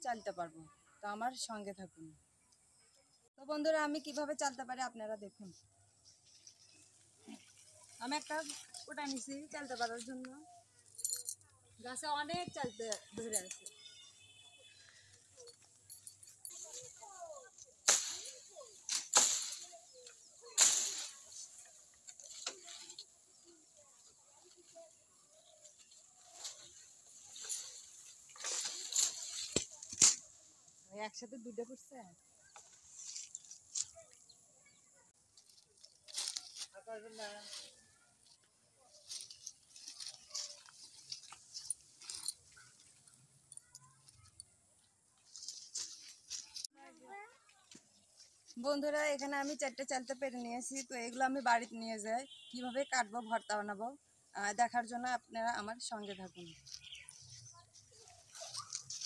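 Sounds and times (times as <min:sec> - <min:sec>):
leaves rustling: 0:05.4 - 0:11.3, 0:11.9 - 0:34.2, 0:35.2 - 0:43.3, 0:45.2 - 0:52.6, 0:55.8 - 0:59.0.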